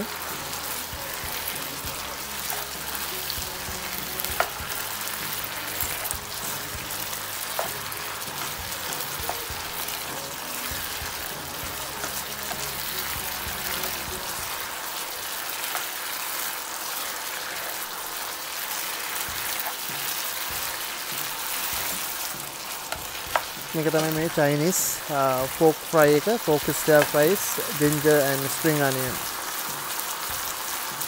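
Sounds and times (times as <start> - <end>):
meat sizzling in a pan: 0.0 - 31.0
spatula tapping a pan: 7.5 - 8.6.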